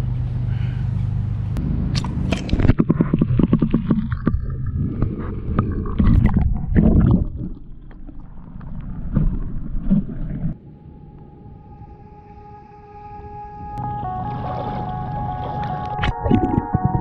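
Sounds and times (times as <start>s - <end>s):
water knocks and gurgles: 2.3s - 10.6s, 14.4s - 17.0s
pool water splashing: 14.1s - 16.7s.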